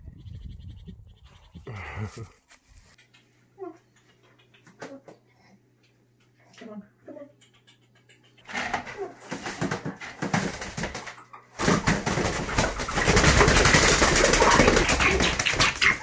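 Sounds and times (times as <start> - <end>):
bird wings flapping: 8.5 - 16.0.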